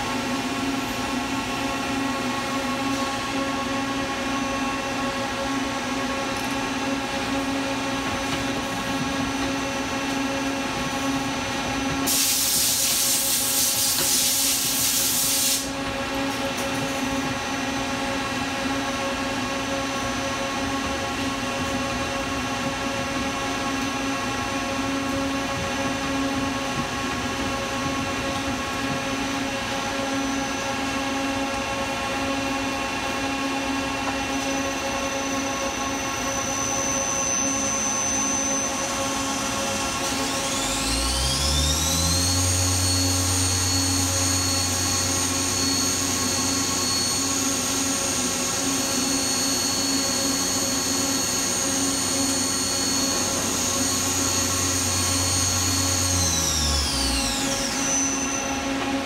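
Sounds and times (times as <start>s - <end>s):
lathe machine hum: 14.6s - 59.0s
spindle whine: 15.8s - 59.0s.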